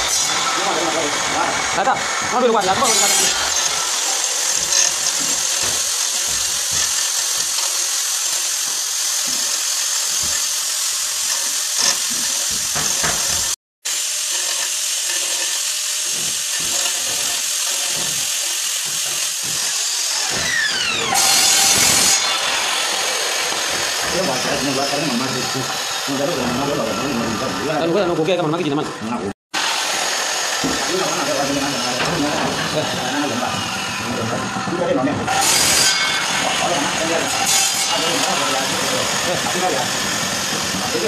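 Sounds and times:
loud rasp: 0.0 - 8.0, 16.1 - 27.8
drill motor spinning down: 0.0 - 28.2
electric drill grinding through tile: 0.0 - 29.0, 29.6 - 41.0.

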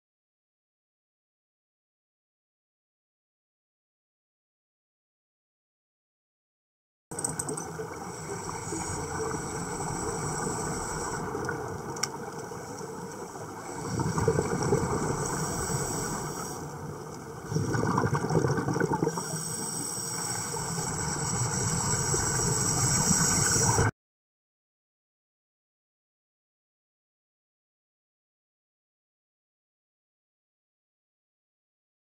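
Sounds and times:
underwater air bubbling: 7.4 - 23.9.

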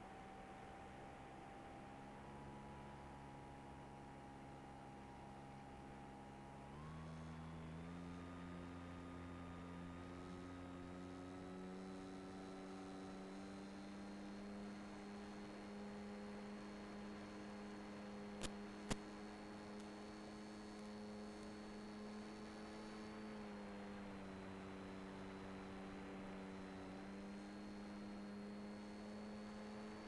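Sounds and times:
electric motor and propeller hum: 6.3 - 30.0.

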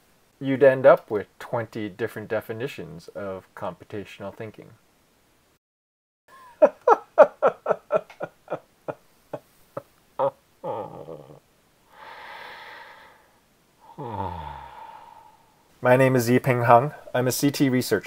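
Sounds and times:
man laughing: 6.3 - 11.4
breathy exhale and sigh: 11.9 - 15.7.

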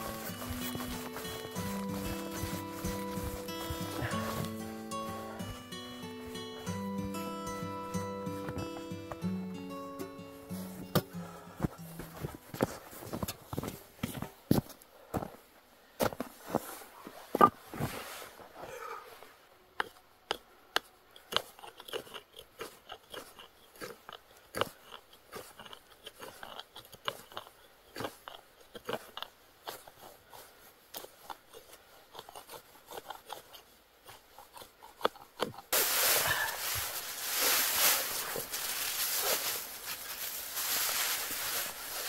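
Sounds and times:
blade shaving wood: 0.0 - 6.0, 31.0 - 42.0
steady rustling: 0.0 - 9.2, 35.7 - 42.0.

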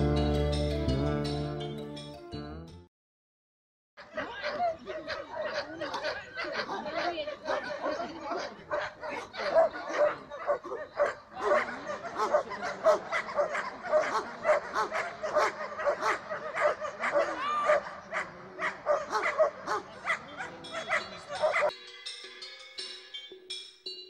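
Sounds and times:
music with plucked notes: 0.0 - 2.9
dog barking rapidly: 5.1 - 21.7.

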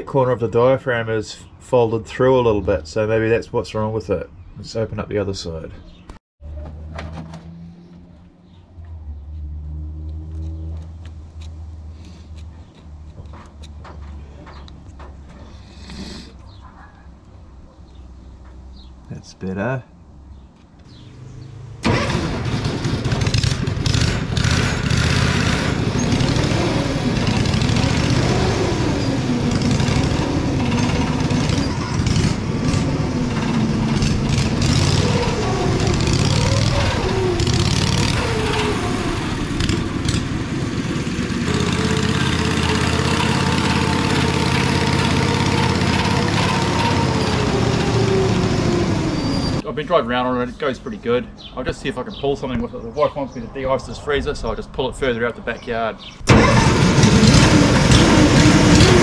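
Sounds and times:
unmuffled engine revving: 6.4 - 16.2, 20.8 - 49.6, 56.2 - 59.0.

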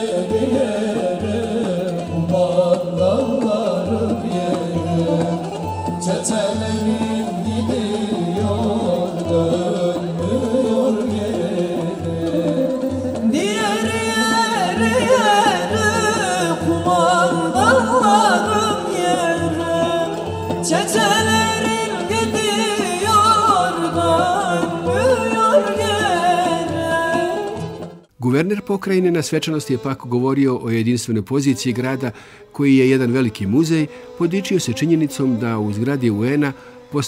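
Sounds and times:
person singing: 0.0 - 28.0
folk melody: 0.0 - 37.0.

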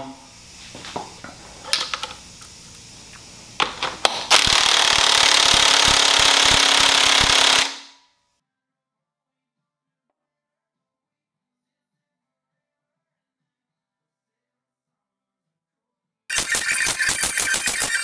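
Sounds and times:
clicks and knocks: 0.9 - 4.5
impact wrench hammering: 3.6 - 8.0.

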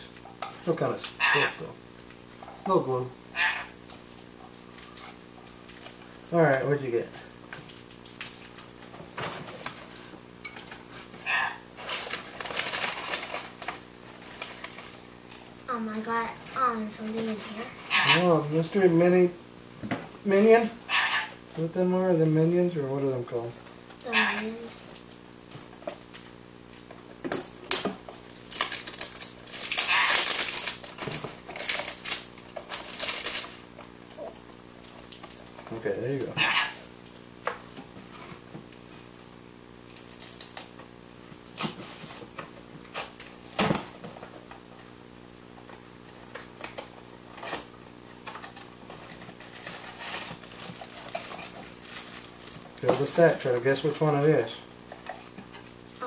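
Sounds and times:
steady low hum: 0.0 - 56.0
cardboard tearing and crinkling: 11.8 - 15.1, 28.4 - 33.6, 48.6 - 54.0
packaging rustling and clicking: 28.4 - 33.6, 48.3 - 54.0.

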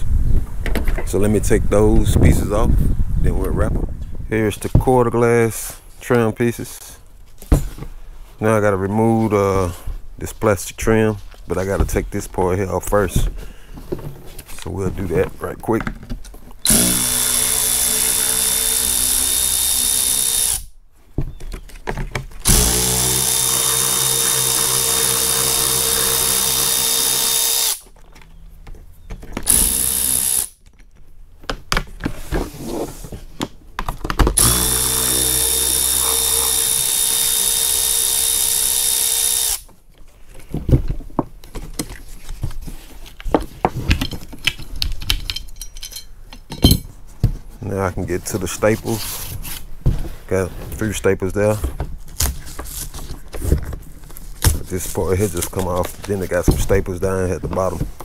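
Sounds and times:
cordless ratchet running: 16.7 - 20.7, 22.5 - 27.8, 29.5 - 30.6, 34.4 - 39.7.

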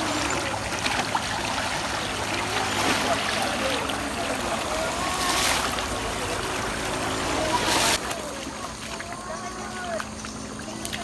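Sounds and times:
stream running over stones: 0.0 - 11.0
water splashing: 0.0 - 11.0
faint children's voices: 2.2 - 11.0.

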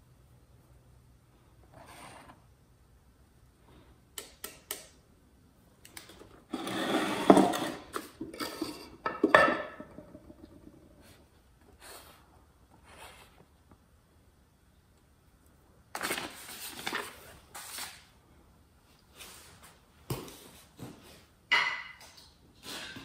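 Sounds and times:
wood scraping and knocking on wood: 6.5 - 10.3.

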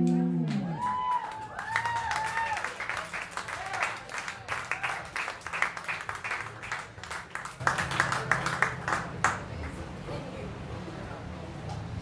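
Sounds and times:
audience applauding: 0.5 - 9.8.

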